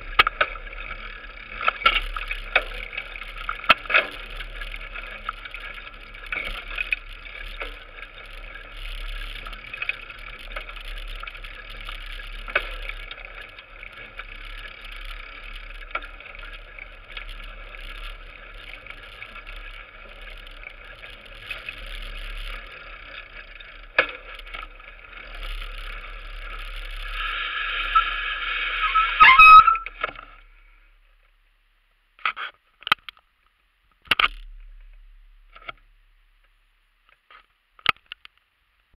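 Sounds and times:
bike rattling over dirt trail: 0:00.0 - 0:31.4, 0:32.2 - 0:38.4.

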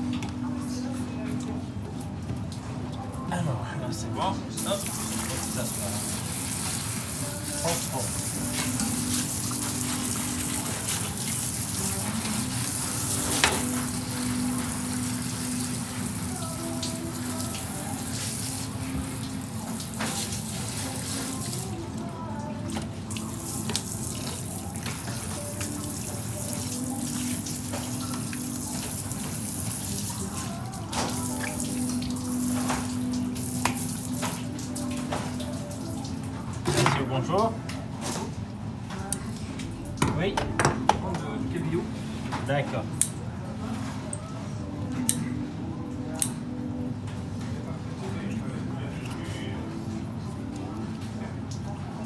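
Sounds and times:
water spraying into a metal sink: 0:04.6 - 0:21.8, 0:23.0 - 0:36.2.

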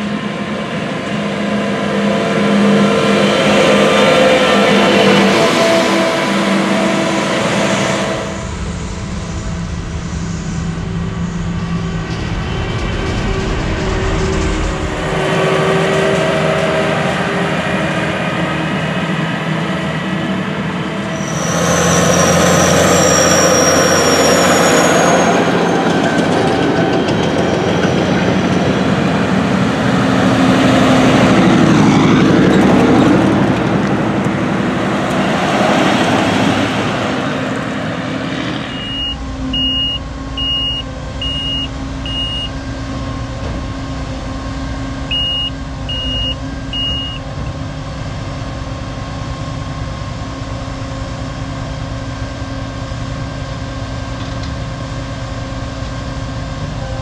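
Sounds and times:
heavy vehicles passing: 0:00.0 - 0:52.9
short high beeps: 0:38.7 - 0:42.5, 0:45.1 - 0:47.2.

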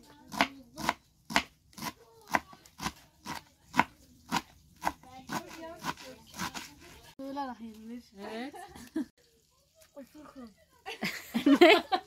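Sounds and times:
knife chopping lettuce on board: 0:00.3 - 0:06.8.

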